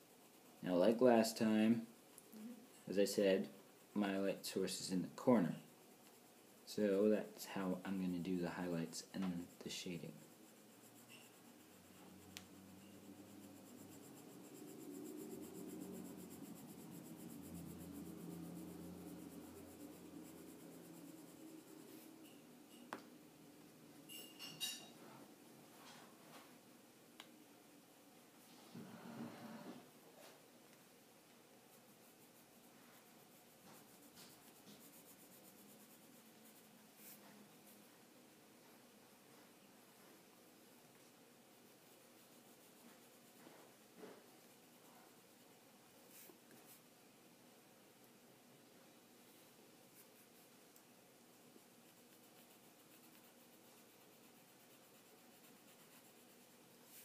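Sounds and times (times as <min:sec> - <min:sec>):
pencil scratching on paper: 0:00.0 - 0:22.4, 0:31.7 - 0:37.9, 0:41.4 - 0:46.9, 0:49.9 - 0:50.7, 0:51.3 - 0:57.0.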